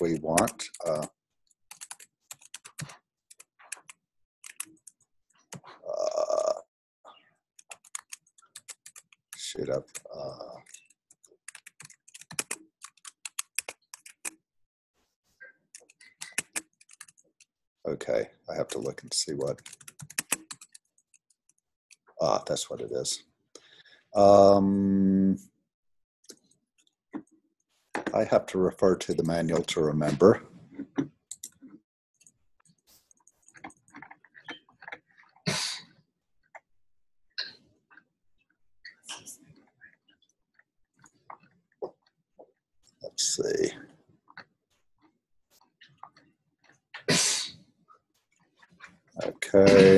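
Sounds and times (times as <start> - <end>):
computer clicks and taps: 0.0 - 1.1, 9.8 - 14.4, 19.5 - 20.8
computer keyboard typing: 0.0 - 1.1, 1.7 - 5.7, 7.6 - 14.4, 15.8 - 17.3, 19.4 - 21.3, 31.3 - 31.6.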